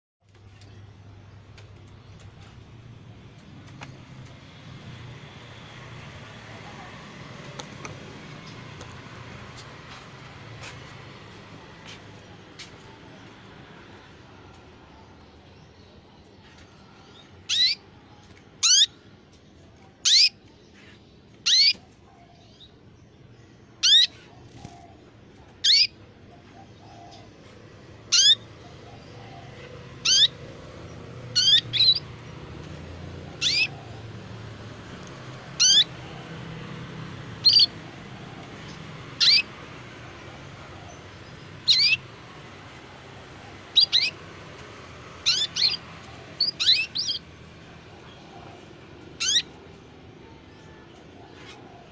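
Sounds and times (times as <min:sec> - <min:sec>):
canary chirping: 0:16.5 - 0:19.0, 0:20.0 - 0:22.8, 0:23.8 - 0:24.8, 0:25.4 - 0:48.2, 0:48.9 - 0:49.7.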